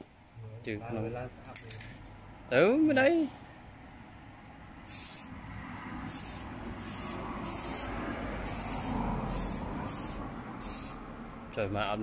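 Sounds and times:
spray paint can hissing: 0:04.9 - 0:05.3, 0:06.0 - 0:11.0.

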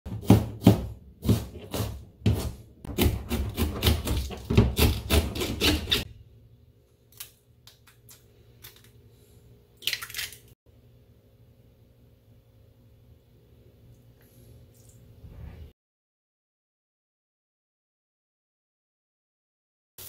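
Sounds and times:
knife chopping on cutting board: 0:00.1 - 0:06.1.

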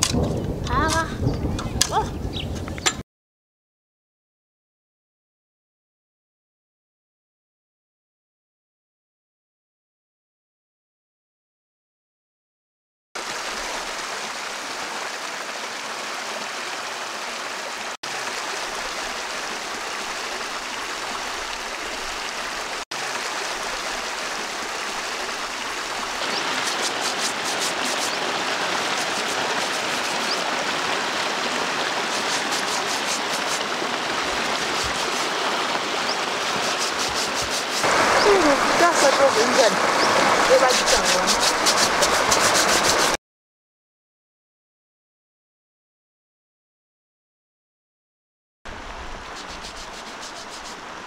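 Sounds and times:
stream water over rocks: 0:13.2 - 0:43.2, 0:48.7 - 0:51.0
scrubbing and splashing clothes: 0:24.5 - 0:43.2, 0:49.2 - 0:51.0.

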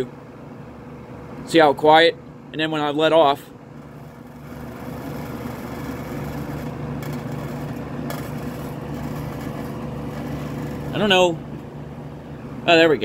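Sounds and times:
fan motor hum: 0:00.0 - 0:13.0
fan vibration rattle: 0:00.0 - 0:13.0.

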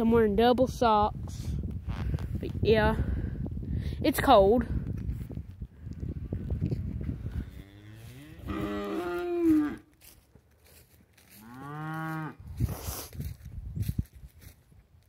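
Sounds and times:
cattle mooing: 0:07.4 - 0:09.9, 0:11.4 - 0:12.4.

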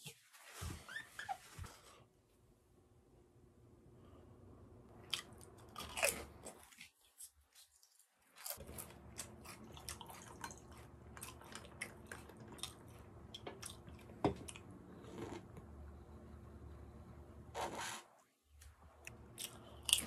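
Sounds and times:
potato chip crunching: 0:05.0 - 0:07.0, 0:07.6 - 0:15.6, 0:19.1 - 0:20.0
person slurping: 0:14.9 - 0:15.6.

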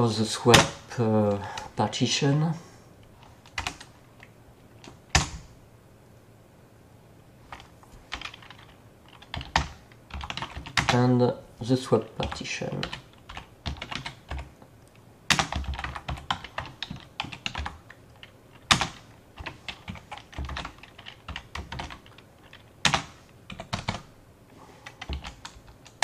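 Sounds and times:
keyboard typing clicks: 0:24.8 - 0:26.0.

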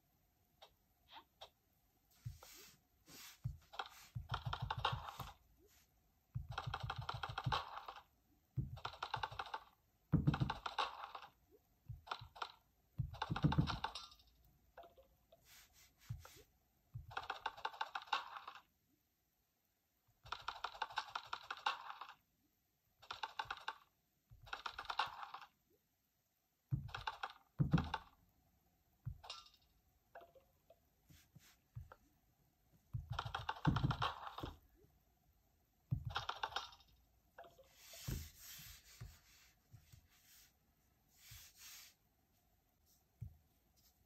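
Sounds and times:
soft rustling: 0:02.1 - 0:04.3, 0:37.6 - 0:42.0.

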